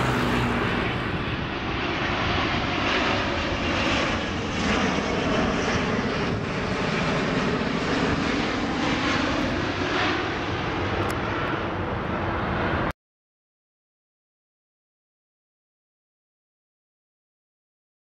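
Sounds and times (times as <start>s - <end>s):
jet engine noise: 0.0s - 13.0s.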